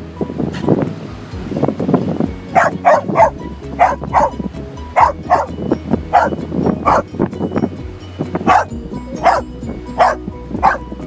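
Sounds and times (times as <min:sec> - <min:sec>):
dog barking: 0:02.6 - 0:04.4, 0:05.0 - 0:05.5, 0:06.1 - 0:07.0, 0:08.4 - 0:10.9.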